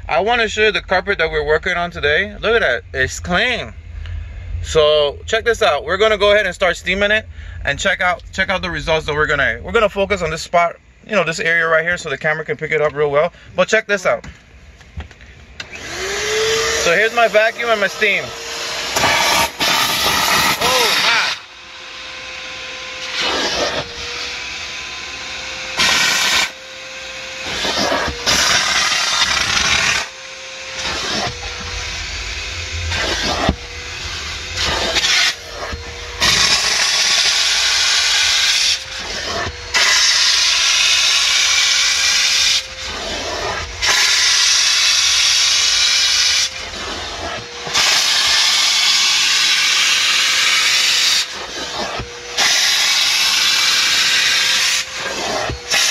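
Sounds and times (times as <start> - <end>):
vacuum extractor whine: 0.0 - 55.9
steam cleaner hissing blasts: 15.6 - 55.9.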